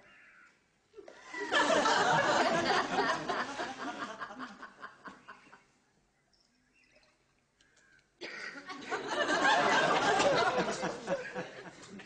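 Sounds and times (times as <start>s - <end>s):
audience laughing: 1.2s - 5.5s, 8.7s - 12.0s.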